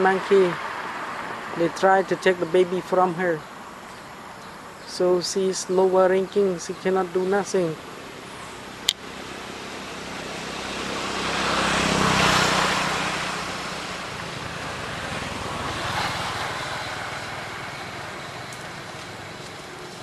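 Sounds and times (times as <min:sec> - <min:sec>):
vehicle passing by: 0:00.0 - 0:04.8, 0:07.1 - 0:20.0.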